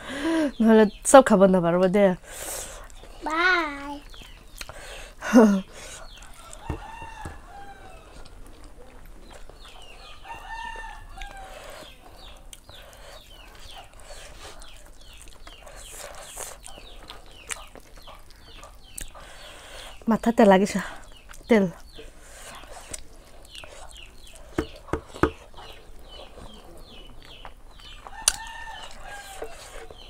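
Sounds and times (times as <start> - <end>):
rooster crowing: 6.4 - 8.3, 10.0 - 11.7, 28.1 - 29.7.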